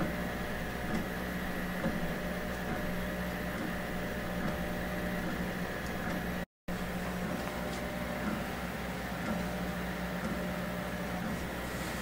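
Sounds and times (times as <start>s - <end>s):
three d printer humming: 0.0s - 12.0s.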